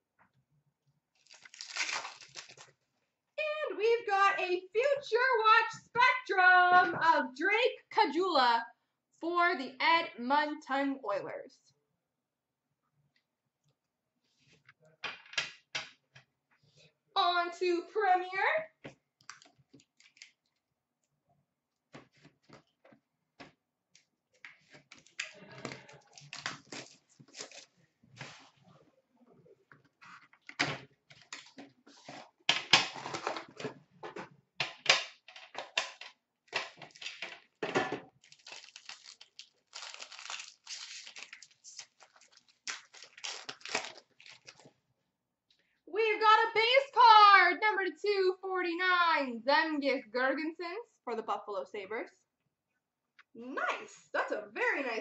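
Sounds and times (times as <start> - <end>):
plastic wrapping tearing and crinkling: 1.2 - 2.8, 19.2 - 20.4, 24.9 - 27.8, 38.2 - 44.7.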